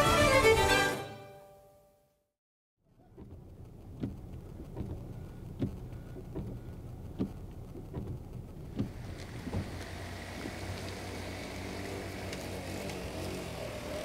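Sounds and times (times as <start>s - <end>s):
dull thuds: 2.9s - 11.2s
water running across road: 2.9s - 14.0s.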